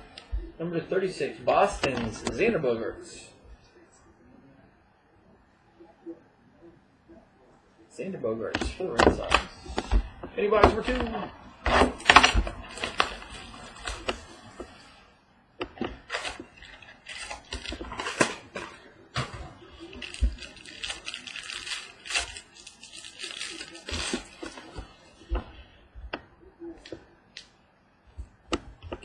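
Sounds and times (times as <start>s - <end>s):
foil wrapper tearing and crinkling: 16.0s - 18.6s, 19.8s - 24.7s.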